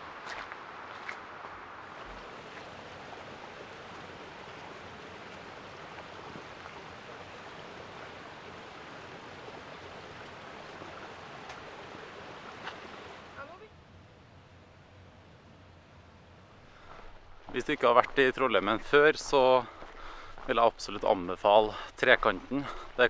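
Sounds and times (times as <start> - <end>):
river rushing over rocks: 1.5 - 13.5.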